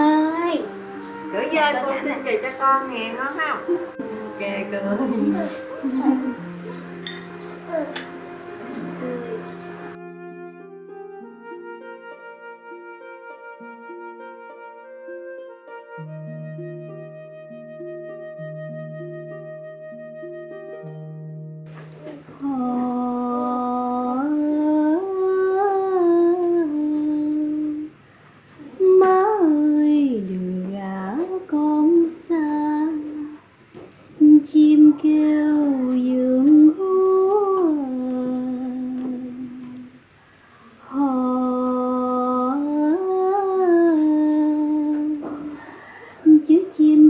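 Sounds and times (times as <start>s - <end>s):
woman humming lullaby: 0.0s - 10.1s, 21.8s - 28.0s, 28.6s - 33.5s, 34.2s - 40.1s, 40.8s - 47.0s.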